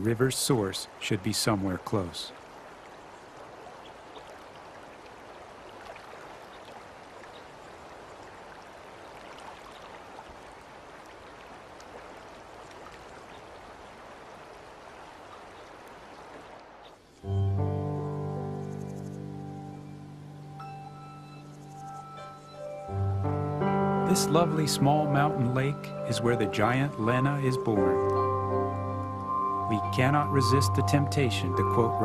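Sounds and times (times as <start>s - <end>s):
creek rushing over rocks: 0.0s - 16.9s
music with sustained notes: 17.2s - 32.0s.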